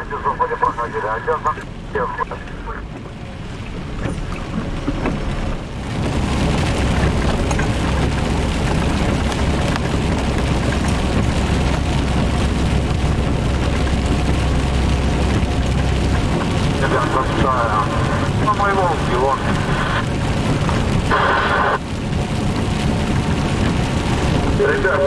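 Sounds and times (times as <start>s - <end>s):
rain: 0.0s - 25.0s
truck engine rumble: 0.0s - 25.0s
tyres hissing on wet road: 5.8s - 25.0s.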